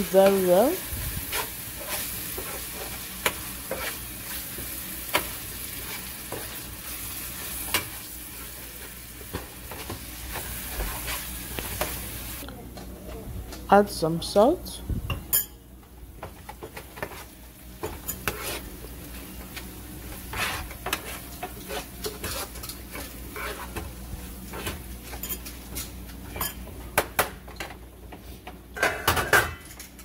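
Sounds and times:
light sizzle: 0.0s - 12.6s, 14.4s - 26.8s
metal spoon scraping frying pan: 1.3s - 4.4s, 17.8s - 18.7s, 20.1s - 23.9s.

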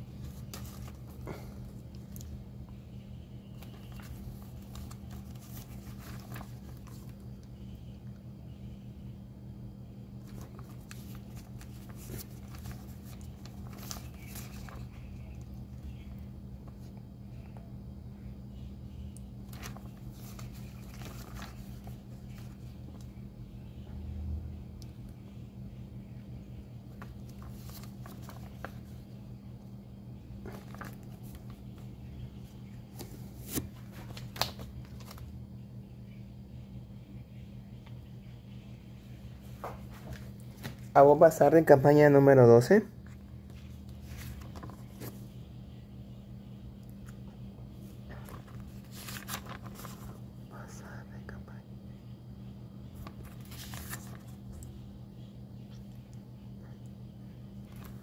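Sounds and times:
steady low hum: 0.0s - 58.0s
paper pages rustling: 0.1s - 2.4s, 3.5s - 7.4s, 10.2s - 17.0s, 19.4s - 23.1s, 26.9s - 29.2s, 30.4s - 35.3s, 39.4s - 41.0s, 43.0s - 45.4s, 47.8s - 50.3s, 52.9s - 54.8s, 57.6s - 58.0s.

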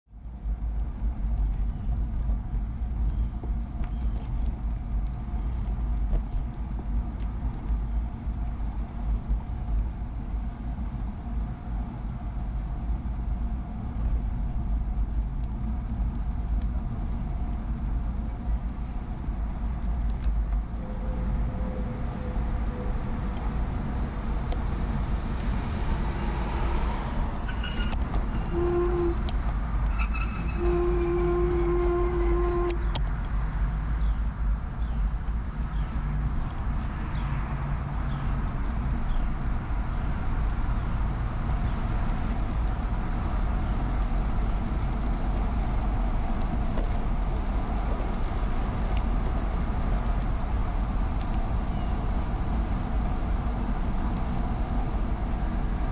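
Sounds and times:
road noise: 0.1s - 55.9s
wind rumble on microphone: 0.1s - 55.9s
short steady tones: 27.5s - 29.3s, 29.9s - 32.8s.

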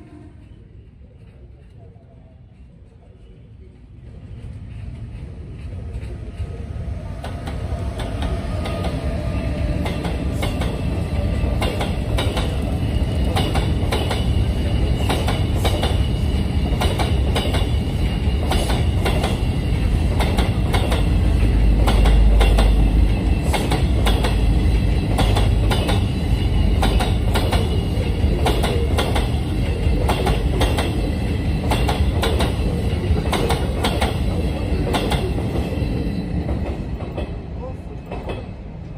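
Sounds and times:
train rumble: 0.0s - 38.9s
wheels clicking over rail joints: 20.1s - 31.0s.

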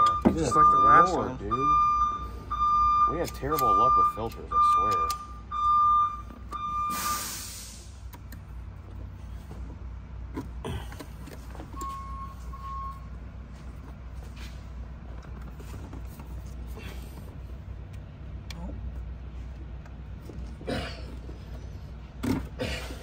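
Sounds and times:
electronic beeps: 0.0s - 7.2s
low workshop hum: 0.0s - 23.0s
short hiss: 6.9s - 8.0s.

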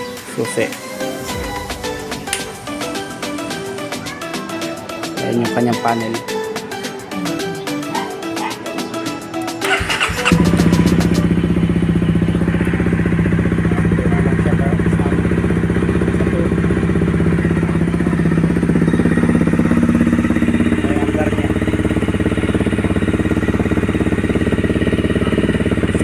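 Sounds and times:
motorcycle engine idling: 9.6s - 26.0s.

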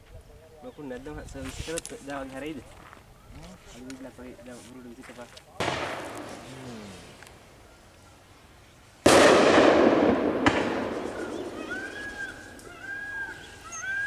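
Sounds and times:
firecrackers banging with echo: 5.6s - 6.5s, 9.0s - 12.7s.

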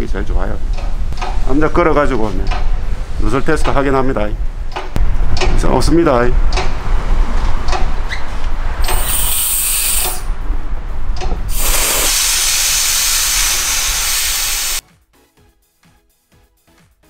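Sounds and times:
gas hissing from valve: 8.8s - 10.3s, 11.5s - 14.8s.

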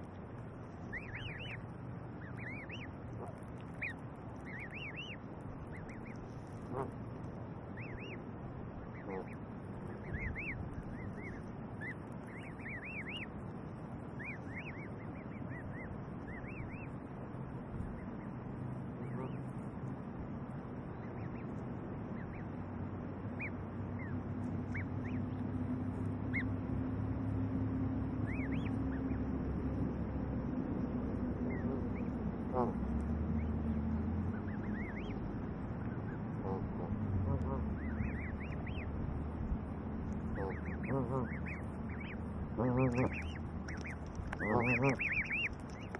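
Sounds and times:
goslings peeping: 0.0s - 8.2s, 8.8s - 20.0s, 20.8s - 45.9s
steady low drone: 15.6s - 45.9s.

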